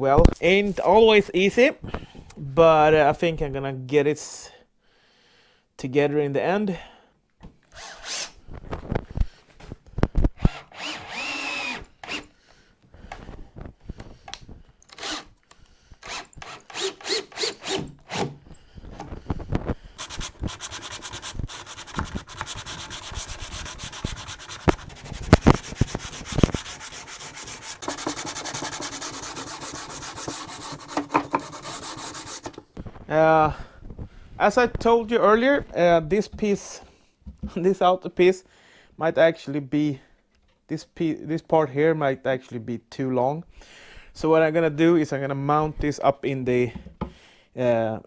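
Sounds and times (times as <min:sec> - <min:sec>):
sandpaper rasping on wood: 0:20.0 - 0:32.6.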